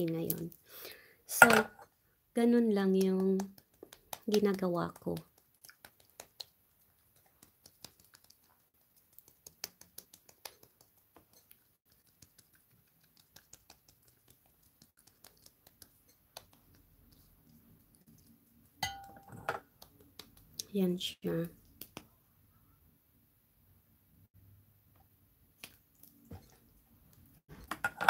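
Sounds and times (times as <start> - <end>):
fingertips tapping on skin: 2.9 - 18.3, 19.6 - 20.7.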